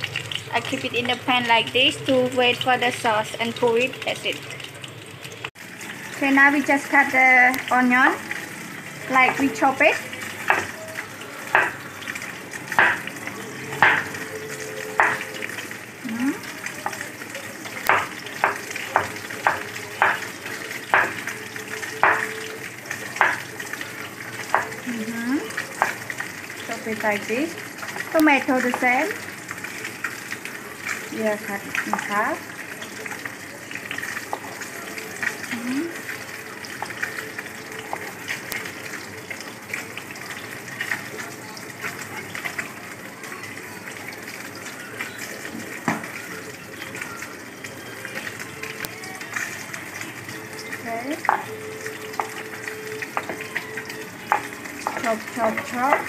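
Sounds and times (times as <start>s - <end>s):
knife chopping on wooden board: 11.6s - 11.8s, 12.8s - 13.0s.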